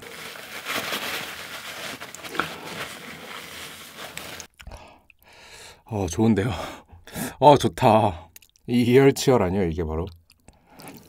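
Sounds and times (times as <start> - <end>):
tissue rustling against skin: 0.0 - 4.5.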